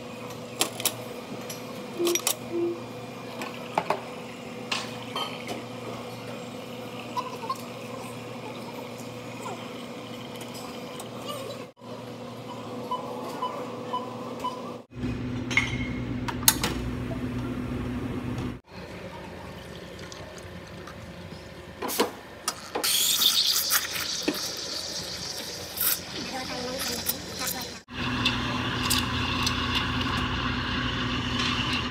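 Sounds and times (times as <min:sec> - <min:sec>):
espresso machine hum: 0:22.8 - 0:31.9.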